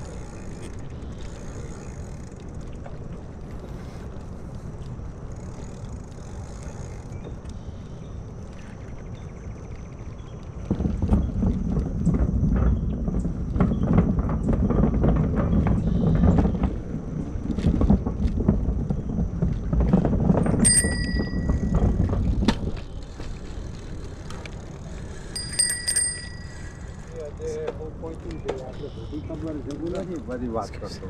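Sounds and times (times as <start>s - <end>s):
bicycle rumble and rattle: 0.0s - 31.0s
bicycle bell ringing: 20.5s - 22.0s, 25.3s - 27.1s.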